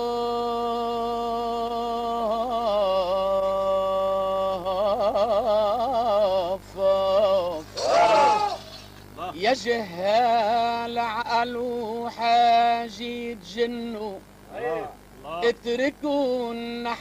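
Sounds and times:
man singing long note: 0:00.0 - 0:08.6.

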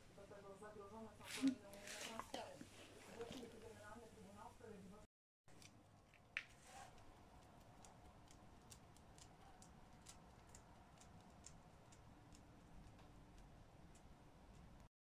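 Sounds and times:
faint irregular clicks: 0:05.5 - 0:14.9.

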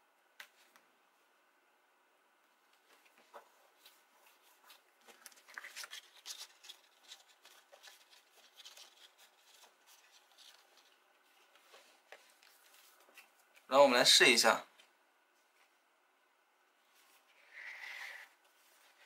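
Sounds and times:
cardstock rustling and clicking: 0:03.0 - 0:13.6.

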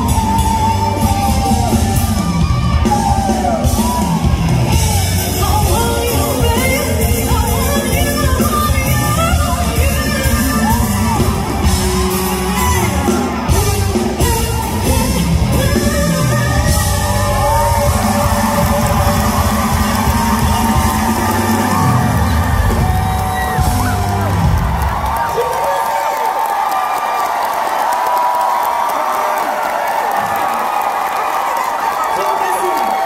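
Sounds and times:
loud music accompaniment: 0:00.0 - 0:25.9
audience yelling and whooping: 0:00.0 - 0:33.0
woman singing: 0:05.1 - 0:11.6, 0:12.4 - 0:21.6.

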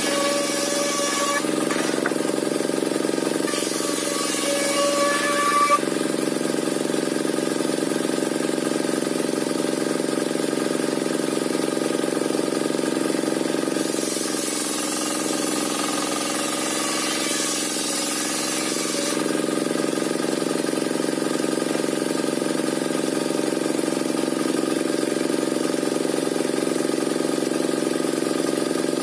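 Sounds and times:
high hiss from saw cut: 0:00.0 - 0:02.1, 0:03.5 - 0:05.8, 0:13.8 - 0:15.4, 0:16.1 - 0:19.3
circular sawmill sawing log: 0:00.0 - 0:07.8, 0:13.5 - 0:27.2.

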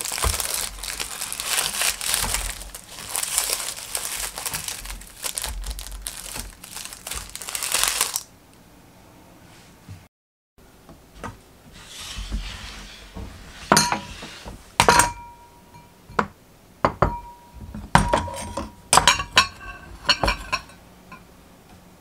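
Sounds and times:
glass bowls clinking on wood: 0:13.7 - 0:14.2, 0:14.8 - 0:21.3.

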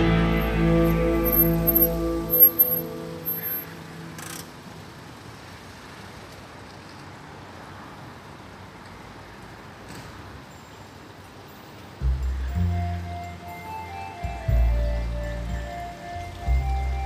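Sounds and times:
background music: 0:00.0 - 0:03.8, 0:12.0 - 0:17.0
distant road traffic hum: 0:00.0 - 0:17.0.

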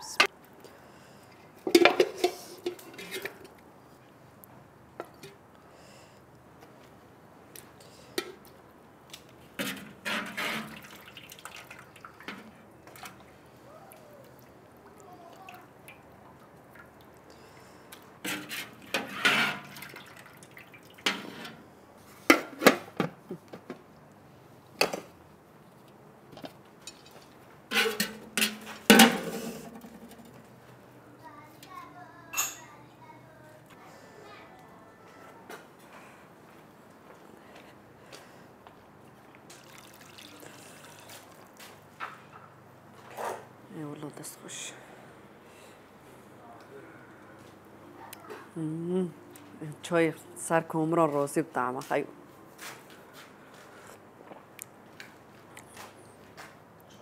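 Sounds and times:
water dripping: 0:10.7 - 0:17.5, 0:19.7 - 0:21.1, 0:39.4 - 0:41.4
dishes and utensils clinking: 0:32.4 - 0:32.7.

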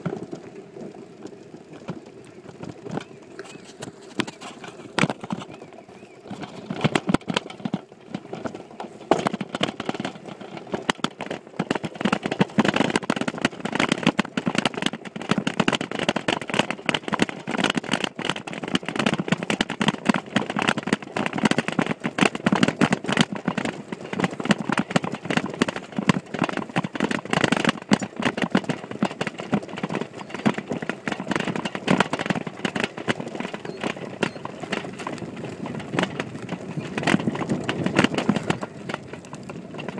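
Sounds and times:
bike rattling over bumpy ground: 0:00.0 - 0:39.9.

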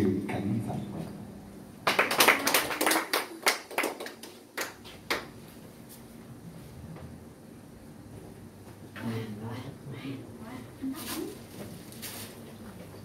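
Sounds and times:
small audience applauding: 0:01.8 - 0:05.4.

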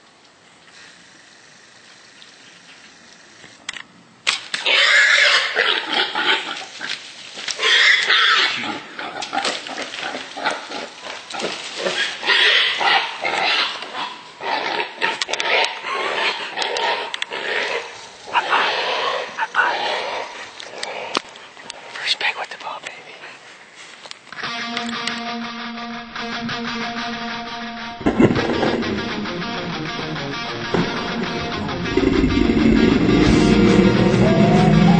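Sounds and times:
hog squealing: 0:04.6 - 0:06.6, 0:07.6 - 0:08.8, 0:18.3 - 0:20.3
sharp click: 0:24.1 - 0:25.3.

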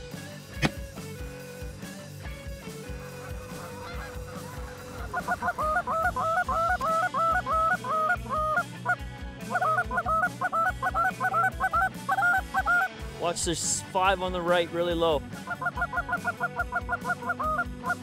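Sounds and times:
faint background music: 0:00.0 - 0:18.0
geese honking: 0:02.9 - 0:12.9, 0:15.4 - 0:18.0.

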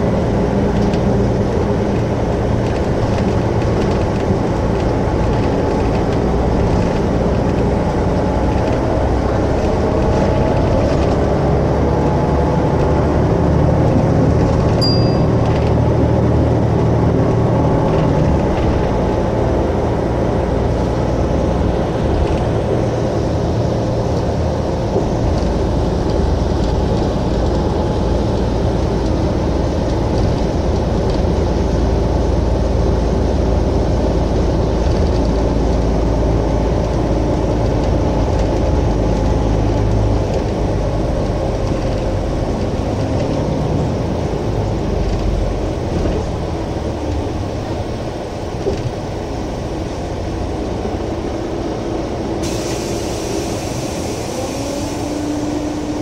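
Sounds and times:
bus engine idling: 0:00.0 - 0:56.0
brief high beep: 0:14.8 - 0:15.4.

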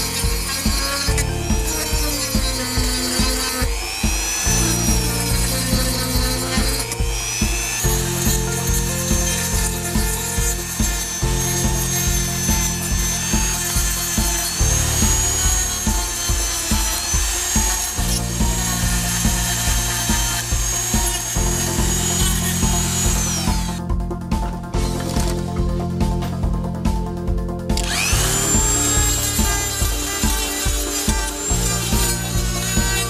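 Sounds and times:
sanding rasp on plastic: 0:00.0 - 0:23.8, 0:27.8 - 0:33.0
rotary tool whine: 0:00.0 - 0:26.4, 0:27.7 - 0:33.0
background music with beat: 0:00.0 - 0:33.0.

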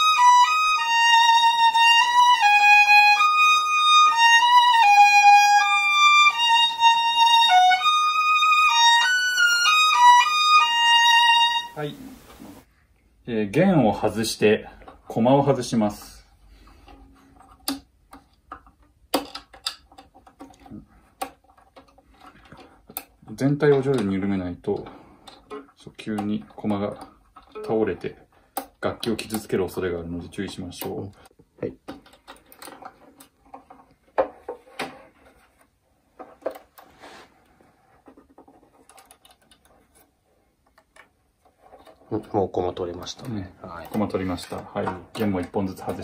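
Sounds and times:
violin tuning pegs clicking: 0:00.0 - 0:11.8, 0:38.8 - 0:39.7
wooden tuning pegs clicking: 0:16.8 - 0:33.9, 0:38.3 - 0:40.0.

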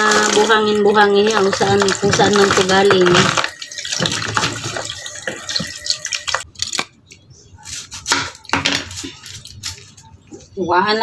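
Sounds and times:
tap water running and splashing: 0:00.0 - 0:06.5
scrubbing crabs by hand: 0:00.0 - 0:06.8.

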